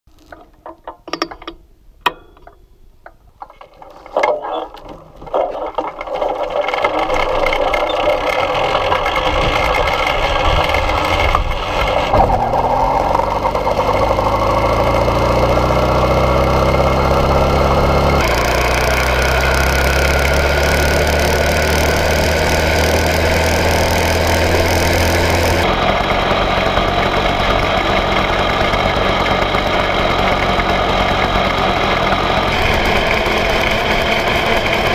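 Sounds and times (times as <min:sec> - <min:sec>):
clicks and knocks: 0:00.3 - 0:08.4
single-cylinder engine running: 0:05.8 - 0:34.9.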